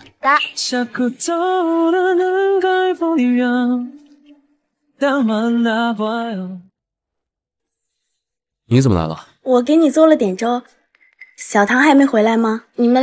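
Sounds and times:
woman singing unaccompanied: 0:00.5 - 0:06.4.

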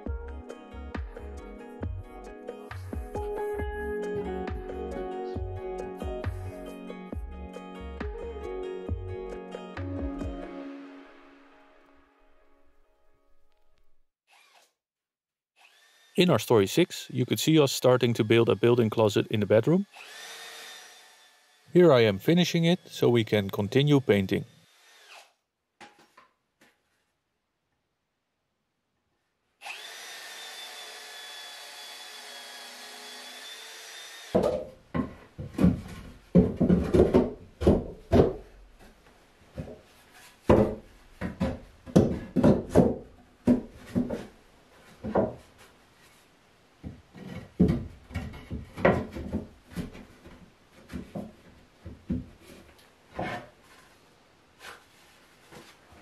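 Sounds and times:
cordless drill motor humming: 0:19.8 - 0:21.7, 0:29.6 - 0:34.4
wooden knocks: 0:34.4 - 0:44.4, 0:45.0 - 0:45.5, 0:46.8 - 0:52.6.

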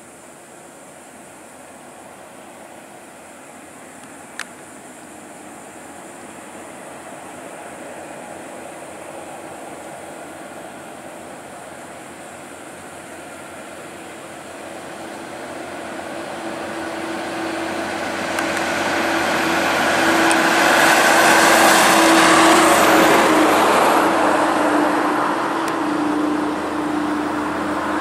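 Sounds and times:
truck passing by: 0:05.2 - 0:28.0.

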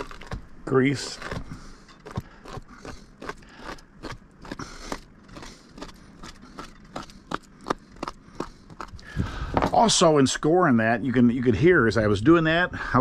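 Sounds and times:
knife crunching through fish bones: 0:00.0 - 0:09.2.

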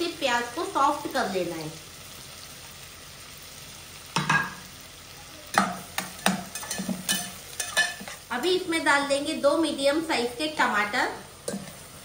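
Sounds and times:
onions sizzling in hot oil: 0:00.0 - 0:12.0
spatula stirring and scraping: 0:05.6 - 0:08.3.

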